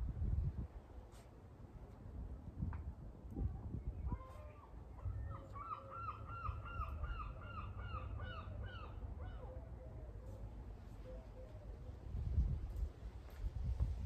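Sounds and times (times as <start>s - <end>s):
bird calling repeated notes: 4.1s - 9.6s.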